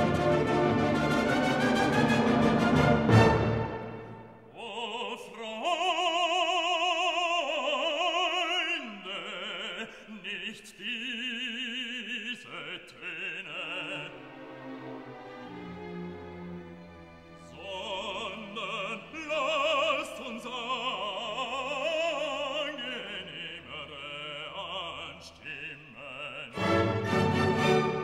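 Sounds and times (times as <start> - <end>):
soft classical accompaniment: 0.0 - 4.5, 13.9 - 20.2, 26.5 - 28.0
person singing with vibrato: 4.4 - 14.4, 17.5 - 27.0.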